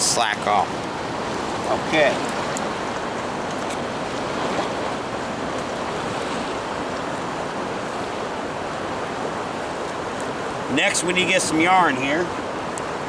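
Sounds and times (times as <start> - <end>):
river current rushing: 0.0 - 13.0.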